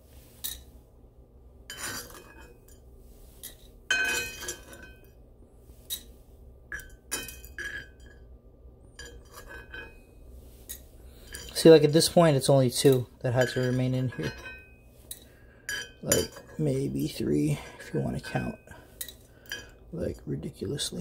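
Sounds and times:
metal spoon clinking on skillet: 0:03.4 - 0:05.1, 0:06.7 - 0:08.3, 0:08.9 - 0:10.0, 0:12.9 - 0:16.6, 0:19.0 - 0:19.8.

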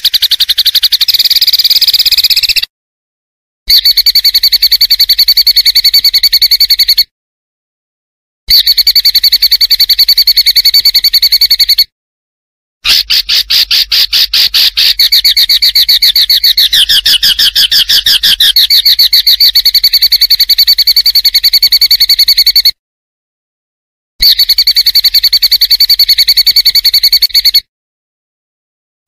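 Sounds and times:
rapid pulsing bird trill: 0:00.0 - 0:02.7, 0:03.7 - 0:07.1, 0:08.5 - 0:11.9, 0:12.8 - 0:22.8, 0:24.2 - 0:27.7.

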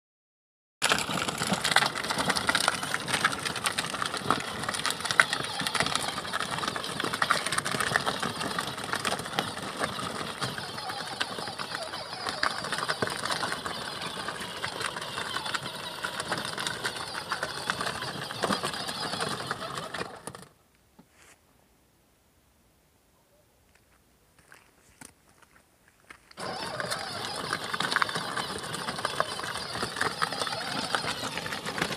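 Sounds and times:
plastic wheels rattling: 0:00.8 - 0:20.5, 0:26.4 - 0:31.9
toy car electric motors: 0:00.8 - 0:20.6, 0:26.4 - 0:31.9.

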